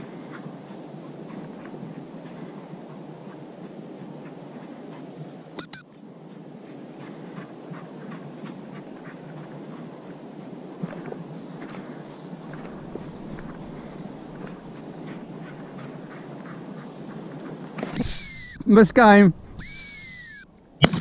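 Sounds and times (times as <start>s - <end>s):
wind rustle: 0.0s - 21.0s
shrill whistle pips: 5.6s - 5.9s, 18.0s - 18.7s, 19.6s - 20.6s
walking through dry grass: 6.2s - 18.0s.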